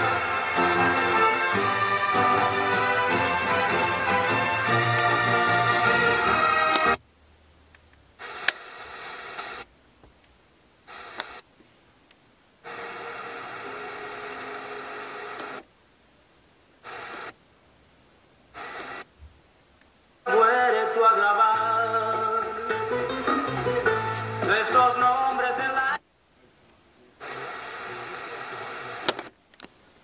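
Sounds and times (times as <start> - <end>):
radio tuner noisy stations: 0.0 - 7.0, 8.2 - 9.7, 10.8 - 11.5, 12.6 - 15.7, 16.8 - 17.4, 18.5 - 19.3, 20.9 - 30.0.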